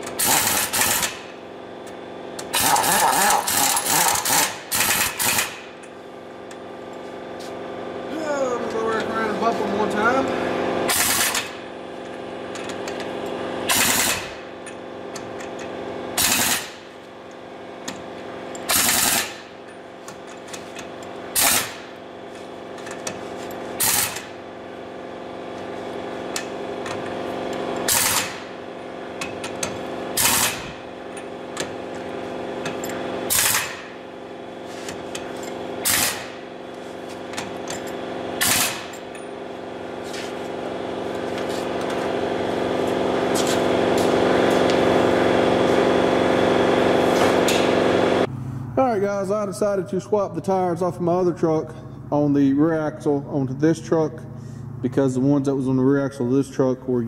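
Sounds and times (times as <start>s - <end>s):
pneumatic impact wrench hammering: 0.0s - 7.6s, 10.8s - 48.3s
steady hum: 0.0s - 57.0s.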